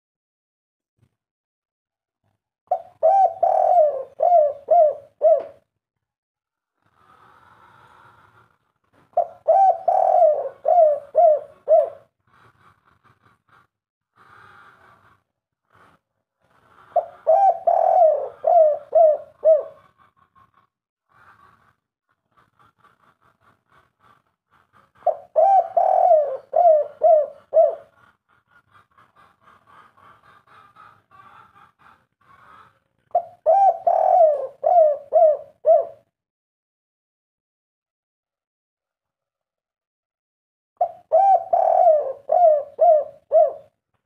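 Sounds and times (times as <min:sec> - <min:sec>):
dove cooing: 0:02.7 - 0:05.6, 0:09.1 - 0:12.1, 0:16.9 - 0:20.0, 0:25.0 - 0:28.0, 0:33.1 - 0:36.1, 0:40.8 - 0:43.8.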